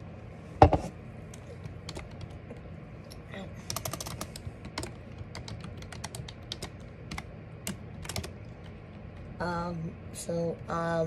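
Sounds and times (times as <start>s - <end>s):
steady low hum: 0.0s - 11.0s
typing on a keyboard: 1.8s - 2.4s, 3.7s - 9.3s.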